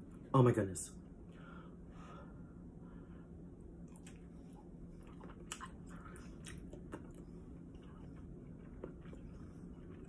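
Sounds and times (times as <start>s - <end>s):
person chewing food: 3.8s - 10.0s.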